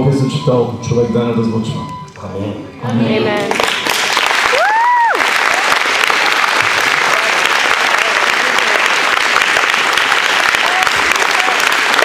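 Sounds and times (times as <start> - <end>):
crowd applauding: 3.3 - 12.0.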